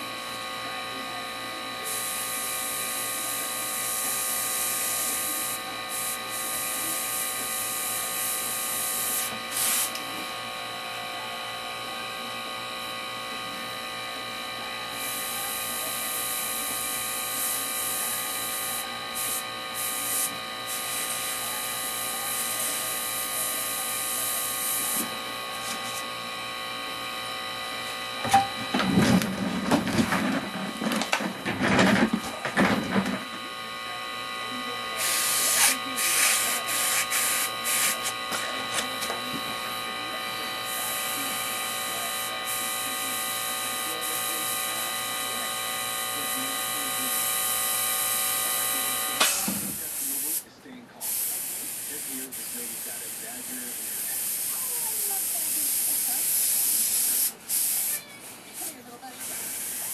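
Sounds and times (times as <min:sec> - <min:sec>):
mechanical hum: 0:00.0 - 0:59.9
airbrush spraying hiss: 0:08.9 - 0:10.0, 0:35.0 - 0:38.1, 0:51.0 - 0:58.0, 0:58.6 - 0:59.9.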